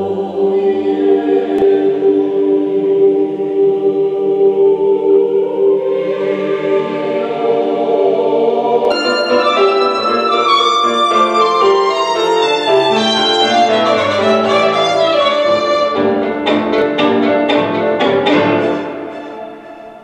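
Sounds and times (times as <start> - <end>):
classical violin music: 8.8 - 20.0.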